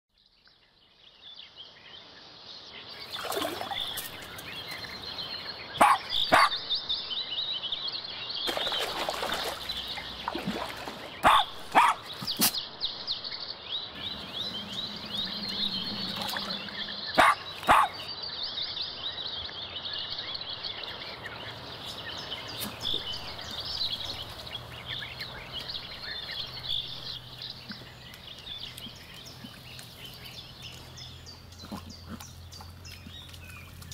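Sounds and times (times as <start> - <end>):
dogs barking sharply: 5.8 - 6.6, 11.2 - 12.6, 17.2 - 18.1.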